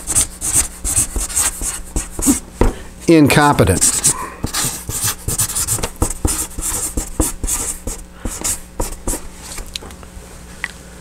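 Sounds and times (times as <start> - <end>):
marker pen scratching on paper: 0.0 - 2.4, 3.6 - 9.6.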